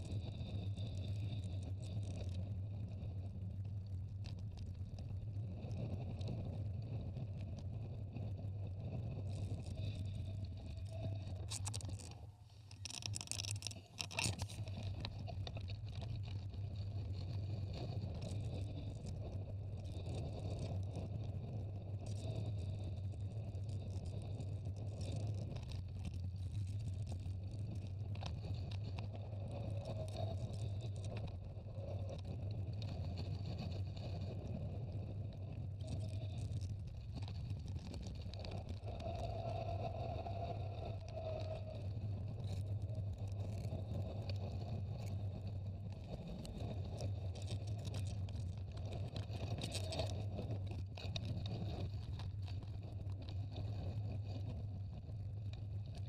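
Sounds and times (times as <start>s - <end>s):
bicycle tyres rolling: 0.0s - 56.0s
wind on microphone: 0.0s - 56.0s
bicycle rattles: 11.4s - 14.8s.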